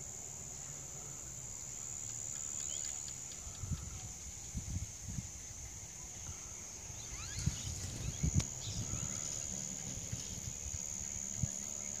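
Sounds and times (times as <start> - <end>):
high-pitched insect drone: 0.0 - 12.0
faint bird chirps: 1.8 - 4.6, 6.0 - 9.6.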